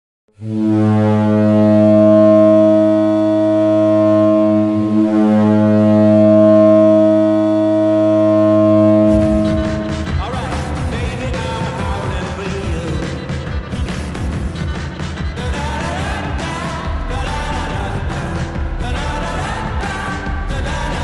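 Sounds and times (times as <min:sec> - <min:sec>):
hockey goal horn blast: 0:00.4 - 0:10.8
goal song music: 0:00.4 - 0:21.0.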